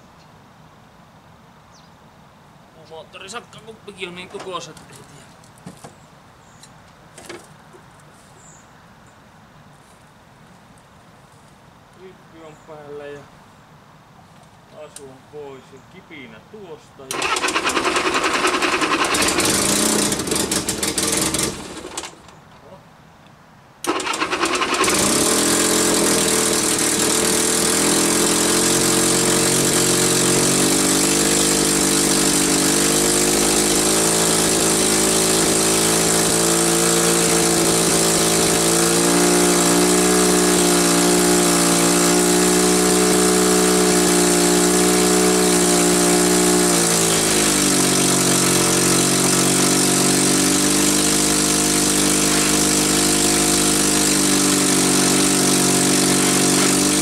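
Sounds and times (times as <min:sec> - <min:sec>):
petrol starting engine running: 0:17.1 - 0:22.4, 0:23.8 - 0:57.0.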